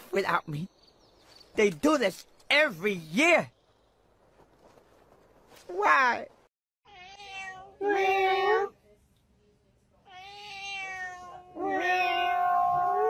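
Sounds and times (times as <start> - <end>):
cat meowing loudly: 6.9 - 8.7, 10.1 - 13.0.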